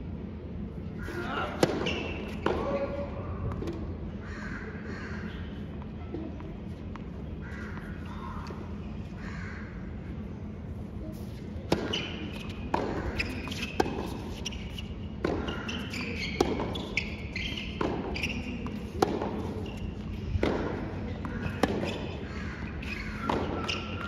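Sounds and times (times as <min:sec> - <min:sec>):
tennis ball hit by rackets: 0:01.5 - 0:02.6, 0:11.7 - 0:22.2, 0:22.8 - 0:24.0.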